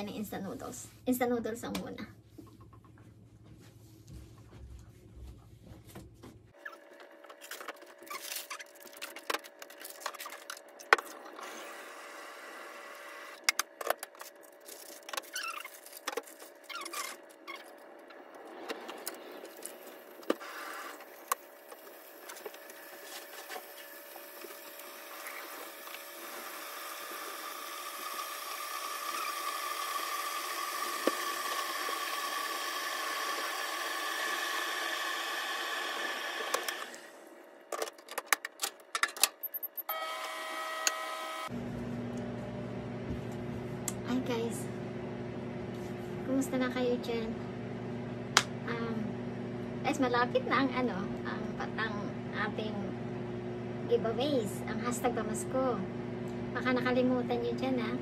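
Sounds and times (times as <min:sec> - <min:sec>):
electric kettle hissing: 0:11.4 - 0:13.5, 0:19.3 - 0:37.2.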